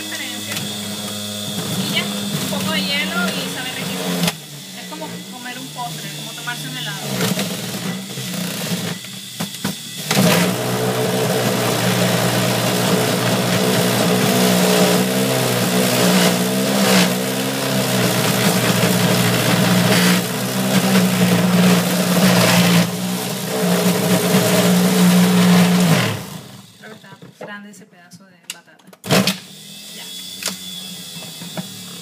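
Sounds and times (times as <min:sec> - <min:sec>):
electric juicer motor running: 0:00.0 - 0:27.3, 0:29.0 - 0:32.0.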